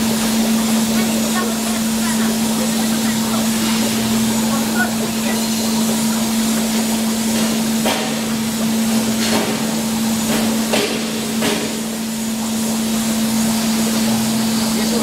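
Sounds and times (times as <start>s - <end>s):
sharp machine knocks: 9.1s - 11.9s.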